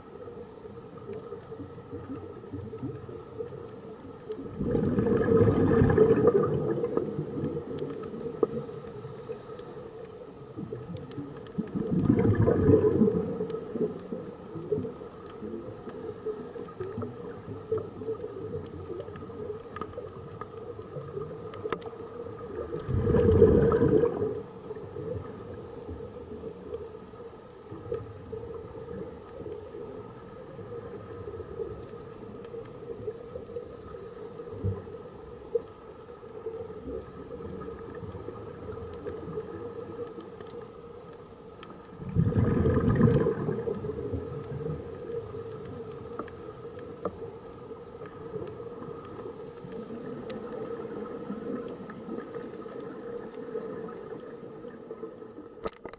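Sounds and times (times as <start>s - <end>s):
faint clicks: 0.0s - 55.9s
underwater bubbles gurgling: 0.0s - 55.9s.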